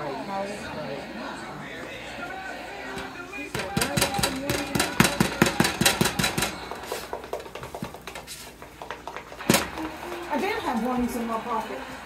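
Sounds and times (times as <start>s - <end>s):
spatula tapping on griddle: 3.5s - 9.3s.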